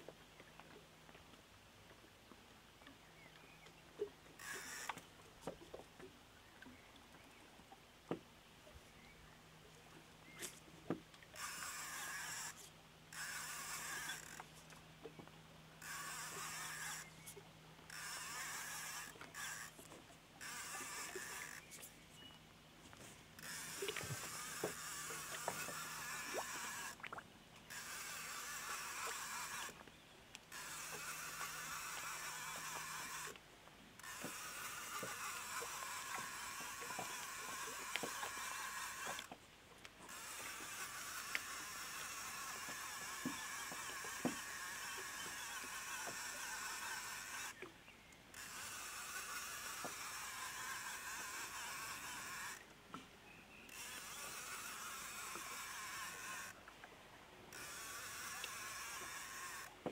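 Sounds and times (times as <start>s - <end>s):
small clicks and knocks: 0.0s - 7.3s, 22.9s - 33.4s, 34.0s - 53.1s, 57.5s - 59.9s
short rasping noise bursts: 15.8s - 19.8s, 23.0s - 27.1s.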